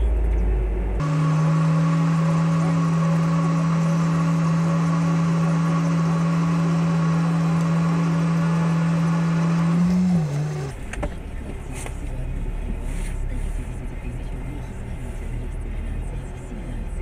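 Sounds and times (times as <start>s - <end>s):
electric winch motor humming: 1.0s - 10.7s.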